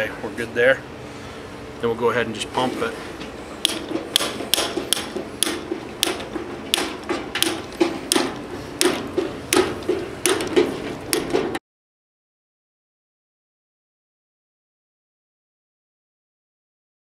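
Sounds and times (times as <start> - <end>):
hydraulic hand pump clicking: 3.6 - 11.4.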